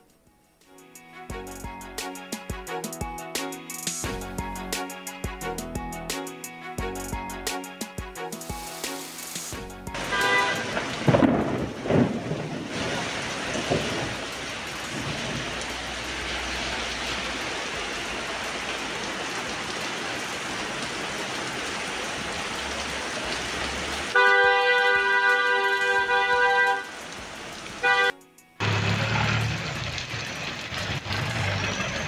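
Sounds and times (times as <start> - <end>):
heavy rain on a street: 8.5 - 32.0.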